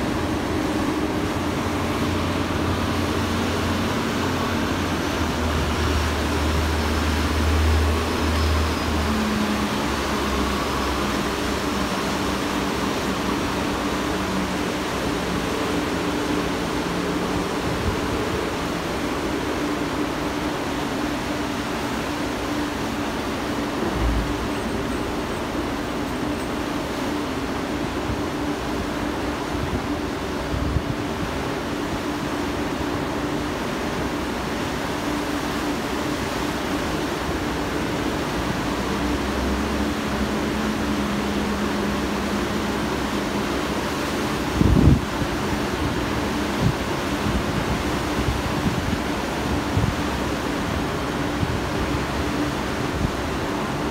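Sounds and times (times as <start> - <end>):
boat engine drone: 0.0 - 53.9
rushing water: 0.0 - 53.9
short low rumble: 23.8 - 25.0.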